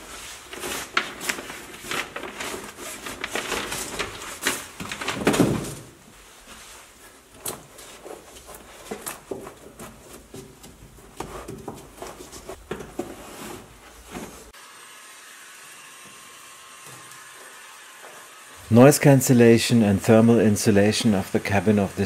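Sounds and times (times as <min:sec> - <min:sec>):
tools and parts clattering: 0:01.1 - 0:06.0.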